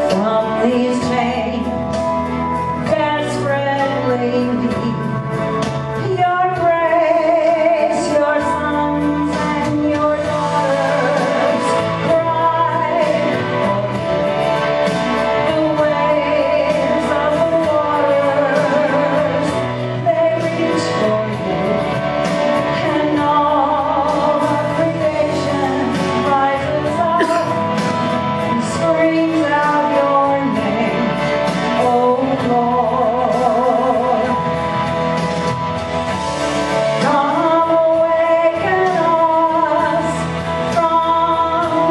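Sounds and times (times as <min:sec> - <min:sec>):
woman singing with vibrato: 0:00.0 - 0:35.0, 0:36.6 - 0:41.9
instrumental accompaniment with beat: 0:00.0 - 0:41.9.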